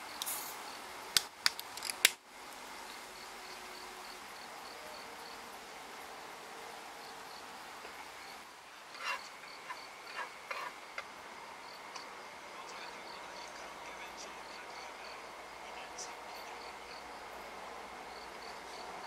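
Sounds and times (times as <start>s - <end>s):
crickets chirping: 0.0s - 19.0s
sharp clicks: 1.1s - 2.2s.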